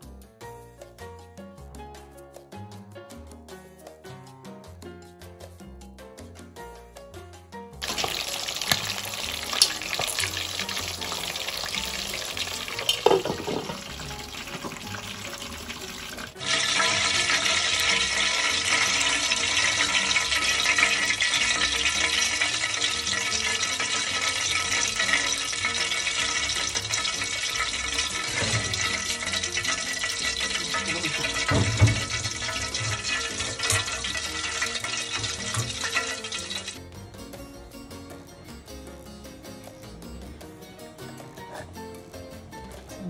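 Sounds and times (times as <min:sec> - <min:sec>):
hot oil sizzling and bubbling: 0:07.8 - 0:37.0.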